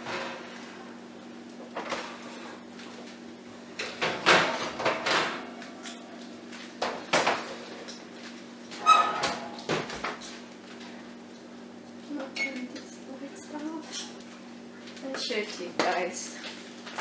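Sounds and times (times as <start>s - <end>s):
metal trays clattering on grates: 3.8s - 5.6s, 8.7s - 10.4s.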